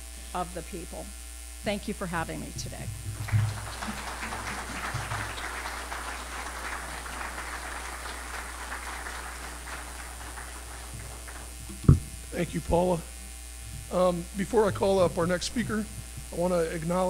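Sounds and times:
audience applauding: 3.1s - 12.7s, 14.0s - 16.7s.

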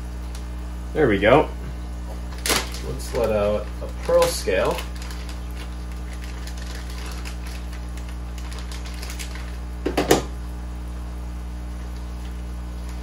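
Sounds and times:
aquarium air pump humming: 0.0s - 13.0s
plastic bag crinkling: 2.2s - 9.8s.

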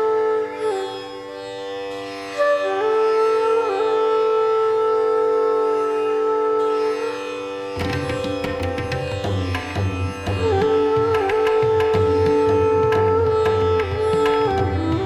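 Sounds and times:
plucked notes: 7.8s - 15.0s
rhythmic percussion: 7.8s - 15.0s.

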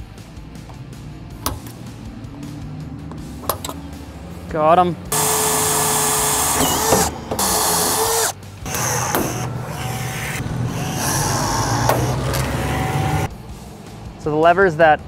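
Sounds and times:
cordless drill boring through steel: 5.2s - 13.3s
rivet gun whirring: 5.2s - 13.3s.

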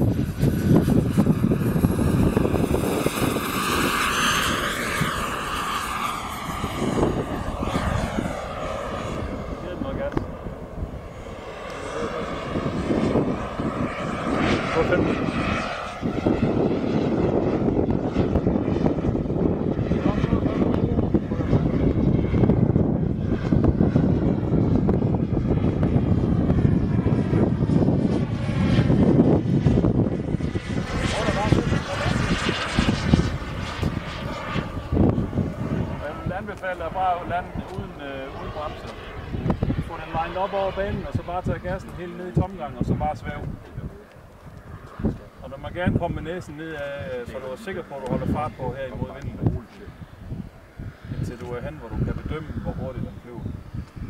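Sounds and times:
model jet whining past: 0.0s - 54.0s
wind buffeting microphone: 0.0s - 54.0s.

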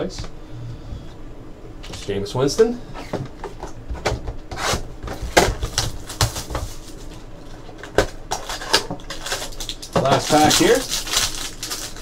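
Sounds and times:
cardboard and foil rustling: 4.7s - 12.0s.

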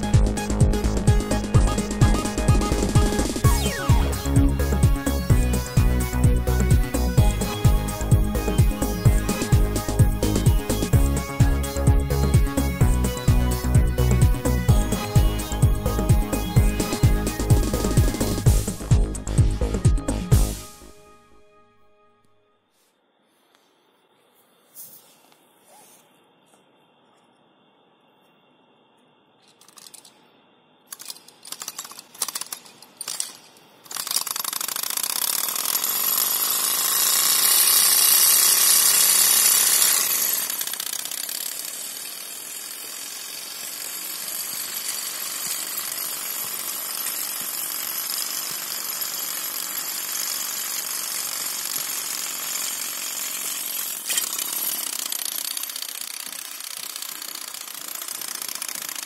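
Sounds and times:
small engine running: 0.0s - 20.7s, 33.9s - 59.0s
sharp clicks of flywheel: 30.9s - 59.0s.

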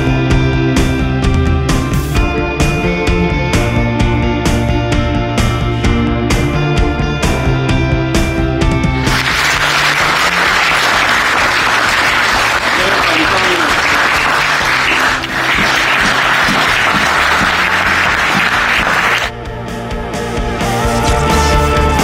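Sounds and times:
people clapping: 9.0s - 19.3s.

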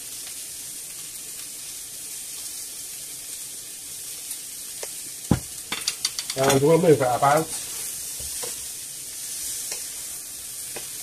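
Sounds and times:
food sizzling in a pan: 0.0s - 11.0s.

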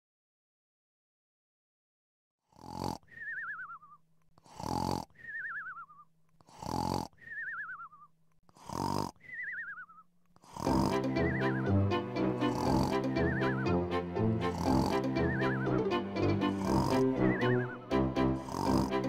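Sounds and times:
cartoon snoring: 2.5s - 3.6s, 4.4s - 5.7s, 6.4s - 7.8s, 8.5s - 9.6s, 10.4s - 19.0s.

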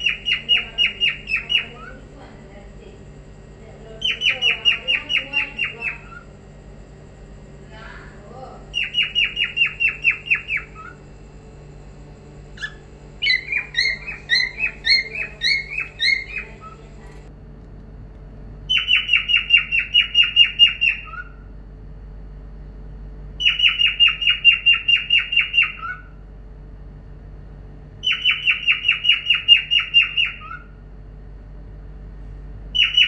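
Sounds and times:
cockatiel chirping: 0.0s - 2.0s, 4.0s - 6.2s, 8.7s - 11.0s, 12.6s - 17.2s, 18.7s - 21.4s, 23.4s - 26.1s, 28.0s - 30.6s, 32.8s - 33.0s.

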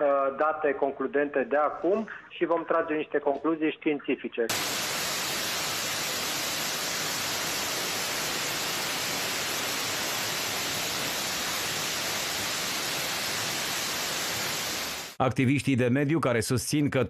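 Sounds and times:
waterfall rushing over rocks: 4.5s - 15.2s.

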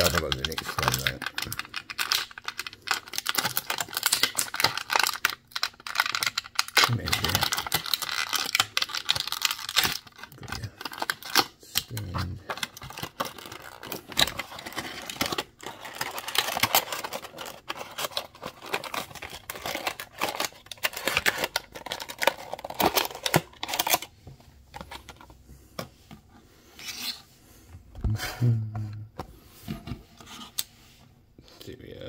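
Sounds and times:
packaging crinkling and tearing: 0.0s - 24.2s.

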